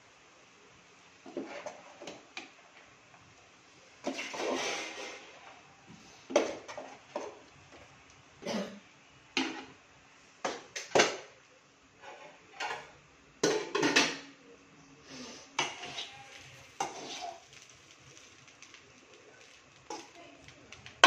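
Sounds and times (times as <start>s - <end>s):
metal spoon scraping metal pans: 4.0s - 5.4s, 15.6s - 17.6s.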